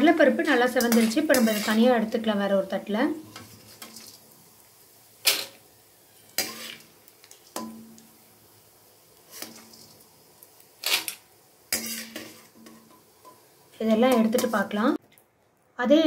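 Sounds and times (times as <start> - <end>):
steel ladle scraping a pan: 0.7 - 2.0, 3.2 - 4.2, 5.2 - 7.9, 9.2 - 10.0, 10.8 - 13.4.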